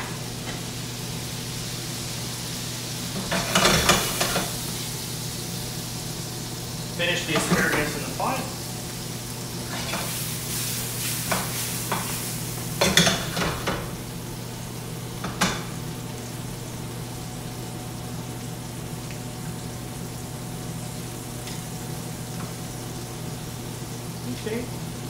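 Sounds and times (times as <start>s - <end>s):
vegetables sizzling in a frying pan: 0.0s - 25.0s
utensils clattering against pan: 3.2s - 4.5s, 7.3s - 8.0s, 12.8s - 13.8s.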